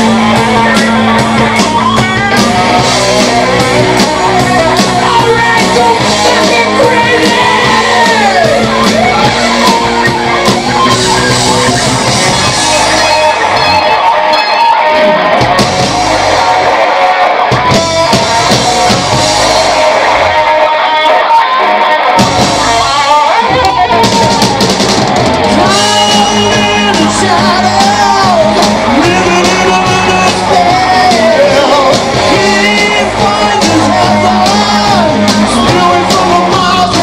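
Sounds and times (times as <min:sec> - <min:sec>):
lead vocals singing: 0:00.0 - 0:13.6, 0:25.4 - 0:37.0
distorted electric guitars: 0:00.0 - 0:37.0
drum kit: 0:00.0 - 0:37.0.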